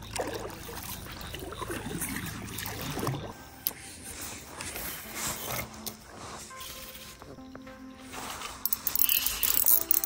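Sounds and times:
water lapping and splashing: 0:00.0 - 0:06.8.

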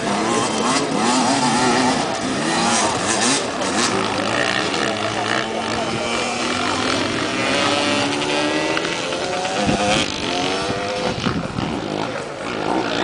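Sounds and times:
motorcycle engines accelerating: 0:00.0 - 0:13.0.

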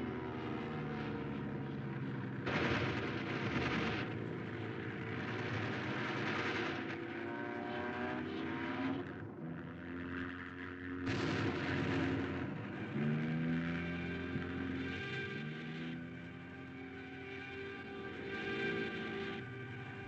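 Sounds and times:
plane engine droning: 0:00.0 - 0:20.0
machine-gun fire: 0:02.4 - 0:04.2, 0:11.1 - 0:12.6.

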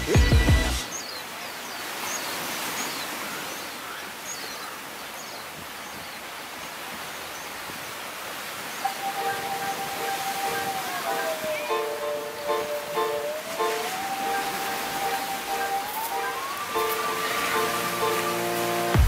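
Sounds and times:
music: 0:00.0 - 0:00.9, 0:08.9 - 0:19.0
small birds chirping: 0:00.8 - 0:18.6
surf hissing: 0:06.7 - 0:19.0.

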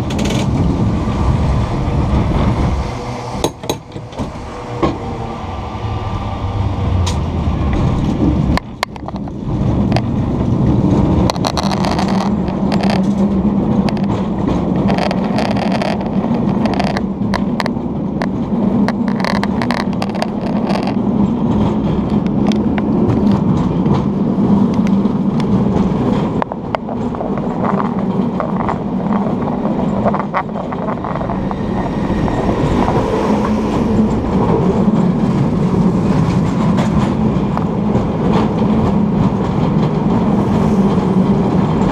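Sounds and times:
clatter of car over rails: 0:00.0 - 0:00.8, 0:07.0 - 0:31.6
cable car humming: 0:00.0 - 0:41.9.

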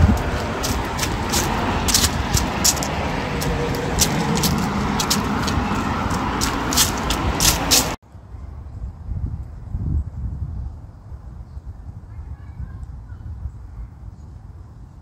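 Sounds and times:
running footsteps on dry leaves: 0:00.0 - 0:08.0
steady rushing noise: 0:00.0 - 0:08.6.

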